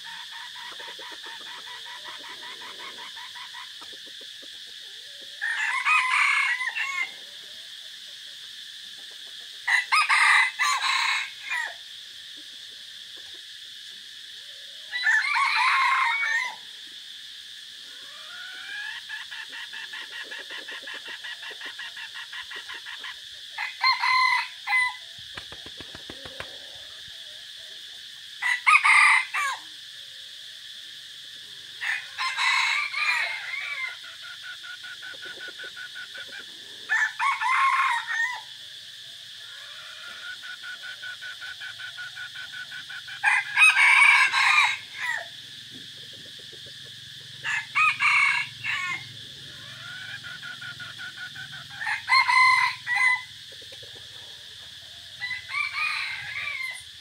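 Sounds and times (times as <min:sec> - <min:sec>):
roosters crowing: 0:00.0 - 0:03.9, 0:04.7 - 0:07.4, 0:09.6 - 0:11.9, 0:14.8 - 0:16.8, 0:17.9 - 0:27.2, 0:28.3 - 0:29.8, 0:31.7 - 0:57.0
soft rapid clucking: 0:25.3 - 0:26.6, 0:45.8 - 0:47.0.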